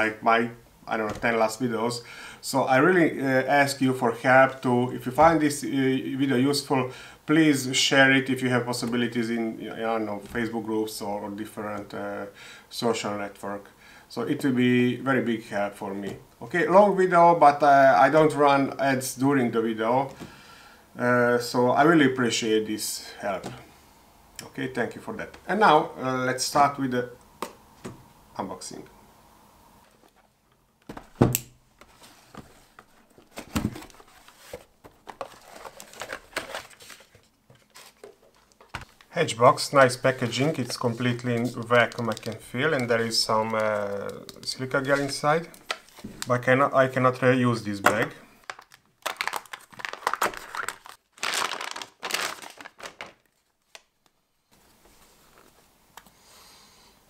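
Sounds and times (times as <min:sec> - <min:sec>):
cardboard flap rustling: 0:30.8 - 0:39.0, 0:48.5 - 0:53.8
plastic crinkling: 0:31.9 - 0:46.4, 0:47.9 - 0:54.2.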